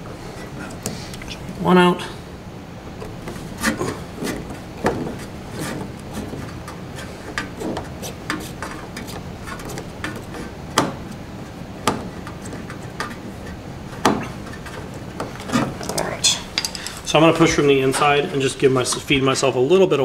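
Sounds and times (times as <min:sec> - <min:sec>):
sharp knocks: 0:03.0 - 0:06.6, 0:07.3 - 0:11.2, 0:11.8 - 0:15.8.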